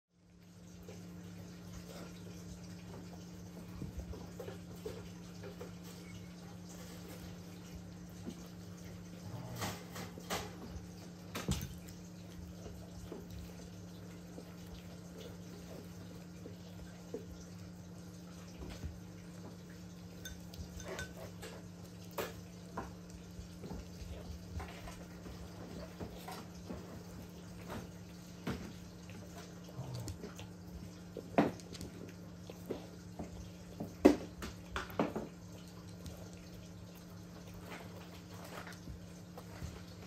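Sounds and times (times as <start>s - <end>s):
dog eating wet smacking: 18.5s - 40.0s.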